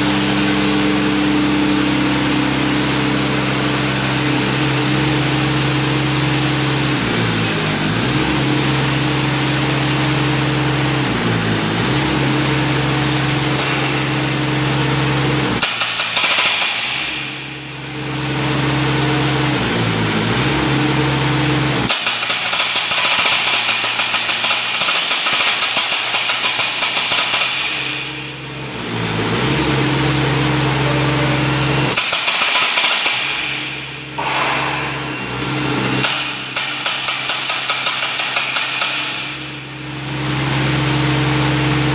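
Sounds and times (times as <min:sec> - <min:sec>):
engine and hydraulic drone: 0:00.0 - 0:41.9
hydraulic breaker hammering: 0:12.7 - 0:17.8, 0:21.8 - 0:28.4, 0:31.9 - 0:39.8.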